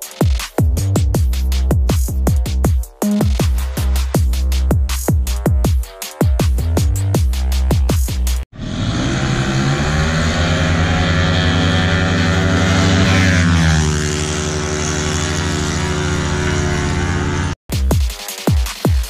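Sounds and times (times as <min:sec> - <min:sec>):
scooter engines revving past: 0:08.6 - 0:17.6.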